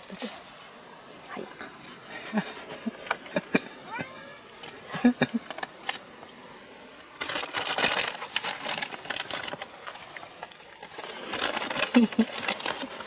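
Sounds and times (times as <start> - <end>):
crunching on gravel: 7.2 - 13.0.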